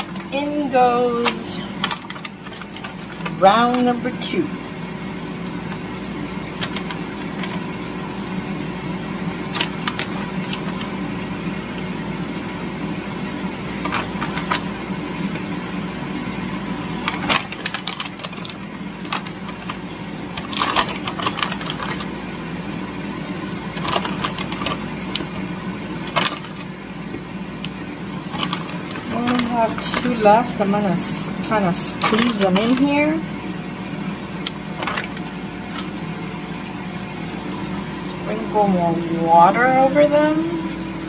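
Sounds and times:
low mechanical hum: 0.0s - 41.0s
plastic bag crinkles: 1.2s - 3.9s, 17.0s - 22.2s, 23.7s - 25.4s, 26.0s - 26.8s, 27.6s - 30.6s, 34.5s - 36.0s.

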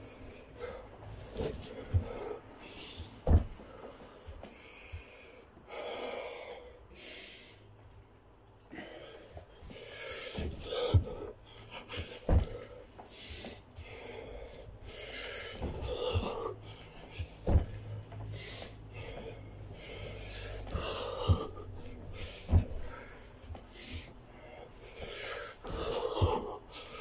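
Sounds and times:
man breathing hard: 0.0s - 7.8s, 8.6s - 27.0s
thuds on carpeted floor: 3.0s - 4.4s, 10.4s - 11.3s, 12.0s - 12.8s, 17.1s - 17.9s, 20.6s - 23.6s.

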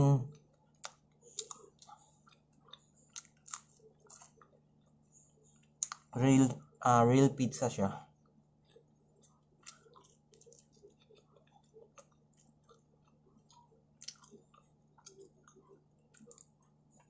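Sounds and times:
wet mouth clicks: 0.3s - 4.6s, 5.8s - 6.1s, 9.6s - 16.5s
chewing crunchy pizza: 0.3s - 6.8s, 8.0s - 17.0s.

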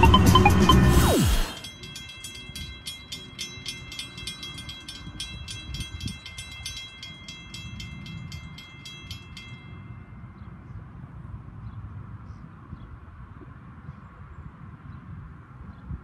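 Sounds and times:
railroad crossing bells ringing: 0.0s - 11.3s.

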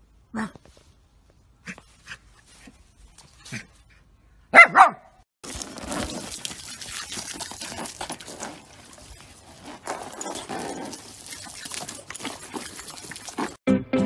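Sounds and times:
garden hose spraying water: 5.4s - 13.6s
water splashing: 5.4s - 13.6s.

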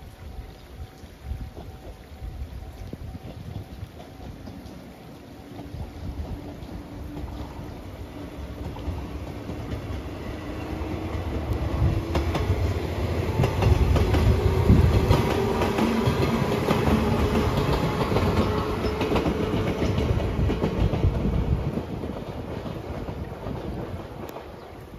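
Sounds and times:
electric train rumbling and humming: 0.0s - 24.9s
train wheels clicking over rail joints: 8.4s - 24.8s.

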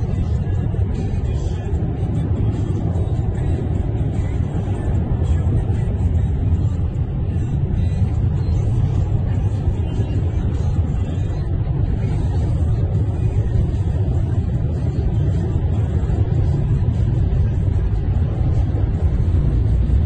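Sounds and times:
road noise inside car: 0.0s - 20.0s
vehicle engines rumbling: 0.0s - 20.0s.

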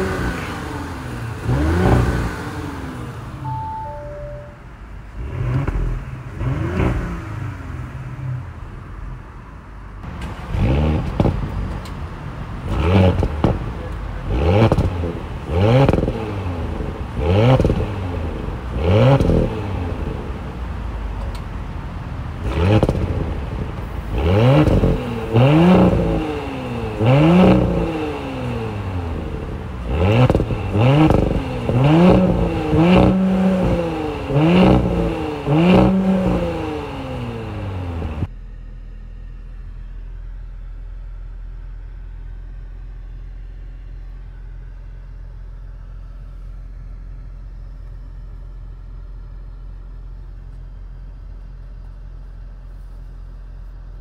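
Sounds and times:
car engine revving: 0.0s - 40.9s.

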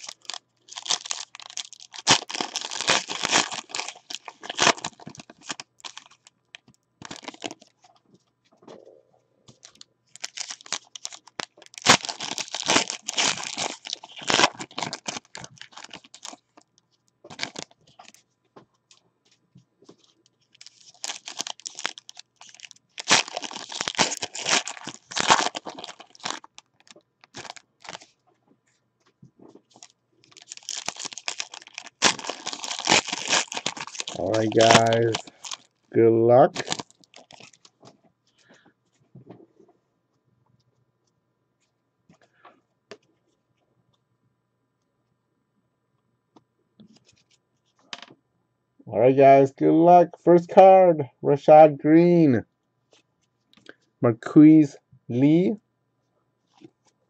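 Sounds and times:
foil wrappers crinkling and tearing: 0.0s - 7.9s, 9.5s - 16.7s, 17.3s - 18.2s, 19.9s - 28.2s, 29.6s - 37.8s.

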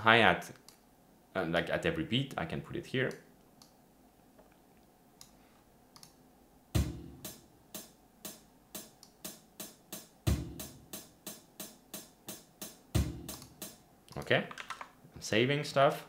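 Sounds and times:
faint mouse clicks: 3.1s - 3.8s, 5.2s - 6.2s
kick drum: 6.8s - 7.4s, 10.3s - 10.8s, 13.0s - 13.4s
hi-hat ticks: 6.8s - 14.2s.

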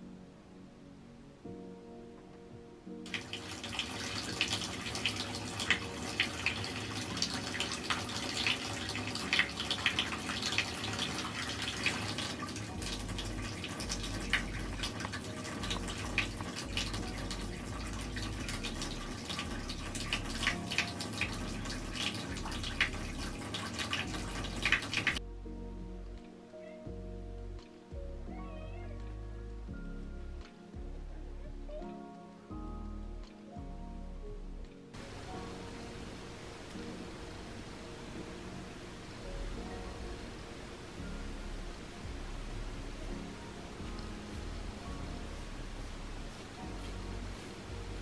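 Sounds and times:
tap water splashing into bathtub: 3.1s - 25.2s
water drips and plinks: 3.1s - 25.2s.

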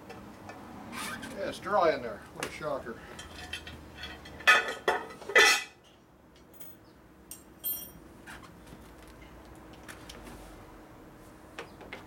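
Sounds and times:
metal tools clattering: 3.1s - 5.7s, 6.6s - 8.0s
ringing metallic clink: 6.6s - 8.0s.

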